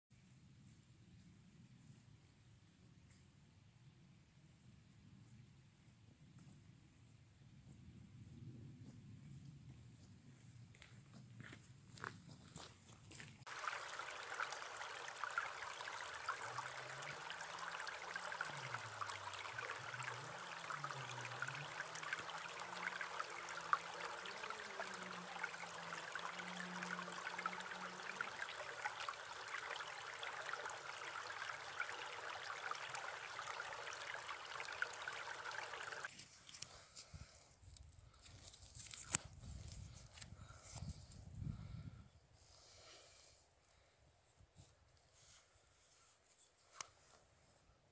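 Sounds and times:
stream rushing over rocks: 0:13.5 - 0:36.1.

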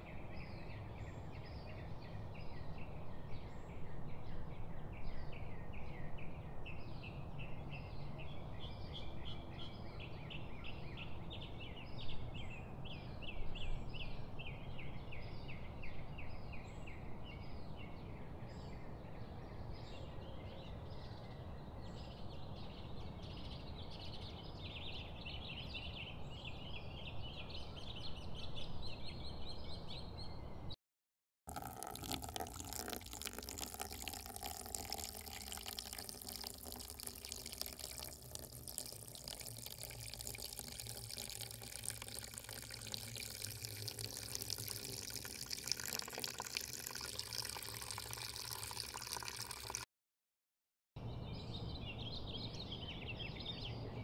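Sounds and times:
milk pouring into metal can: 0:31.5 - 0:49.8
birds chirping: 0:31.7 - 0:49.5.

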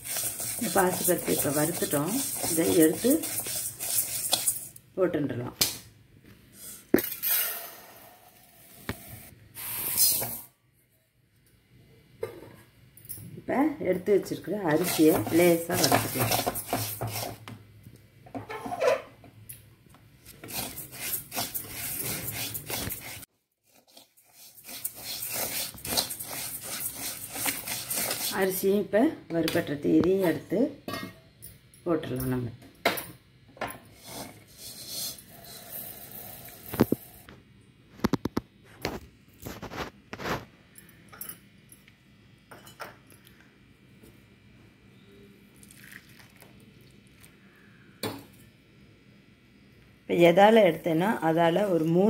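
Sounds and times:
spatula scraping rice in a pan: 0:00.0 - 0:04.7, 0:14.7 - 0:17.4, 0:20.3 - 0:28.4, 0:34.0 - 0:36.9.

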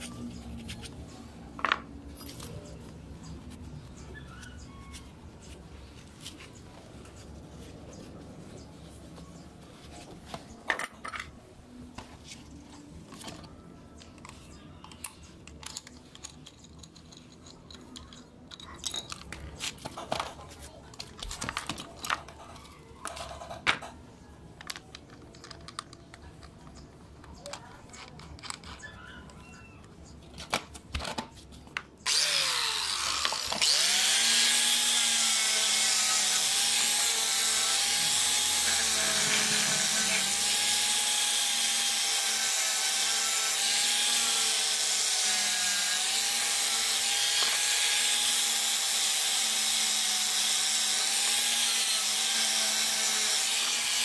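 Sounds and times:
handling clicks and knocks: 0:14.1 - 0:28.8
angle grinder buffing metal: 0:32.1 - 0:54.0.

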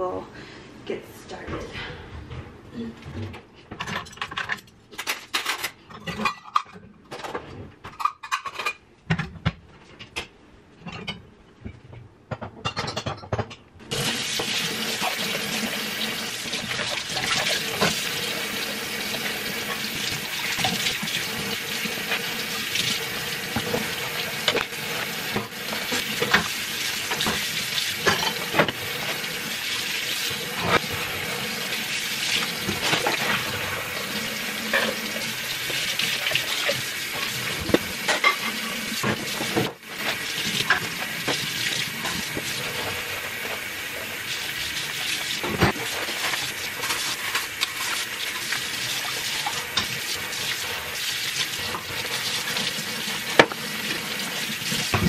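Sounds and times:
dishes clattering and clinking: 0:03.0 - 0:13.7, 0:23.5 - 0:29.2, 0:32.3 - 0:33.7, 0:34.6 - 0:43.0.

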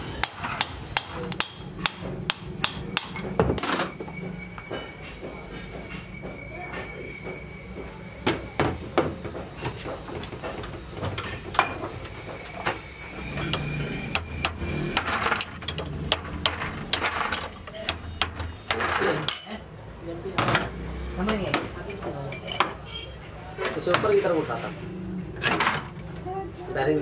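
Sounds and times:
hammer striking metal drift: 0:00.1 - 0:04.0, 0:13.0 - 0:19.5.

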